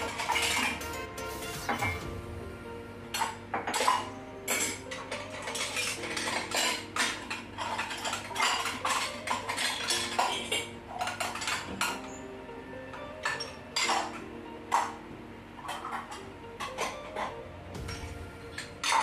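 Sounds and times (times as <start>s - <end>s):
dishes clinking and clattering: 0.0s - 2.2s, 3.1s - 12.2s, 12.9s - 19.0s.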